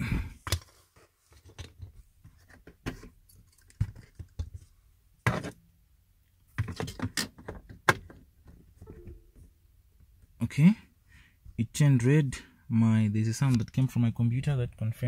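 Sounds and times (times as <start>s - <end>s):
cable handling knocks and rustles: 0.4s - 5.6s, 6.5s - 9.5s.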